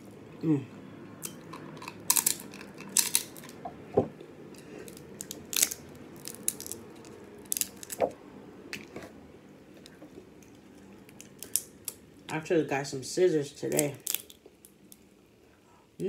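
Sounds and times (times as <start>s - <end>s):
crab shells cracking: 1.2s - 3.6s, 4.6s - 8.1s, 9.8s - 12.3s, 13.7s - 15.1s.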